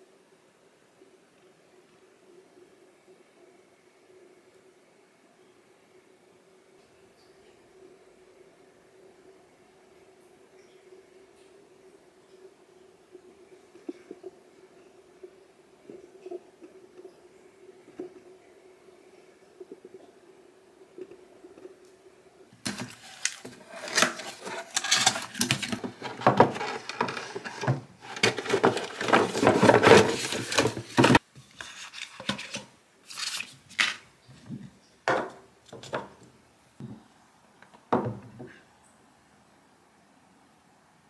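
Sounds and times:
packaging rustling: 22.6 - 34.0
utensils clattering together: 22.7 - 31.2.

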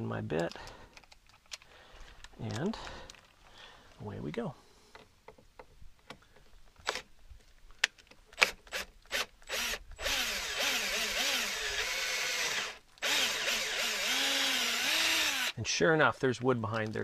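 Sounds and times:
drill clicks: 8.3 - 15.6
cordless drill boring: 8.4 - 15.6.

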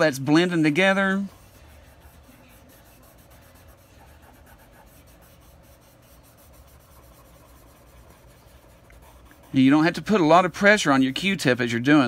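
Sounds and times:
cotton swab rubbing on paper: 0.0 - 11.8.

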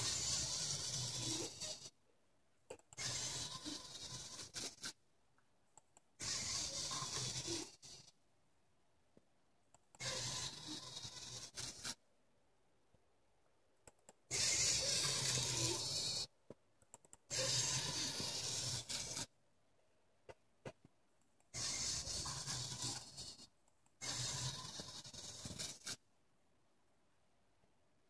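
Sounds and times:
robot arm servo motors whirring: 0.0 - 1.9, 2.9 - 5.0, 6.2 - 8.1, 10.0 - 12.0, 14.2 - 16.3, 17.2 - 19.3, 21.5 - 26.0.

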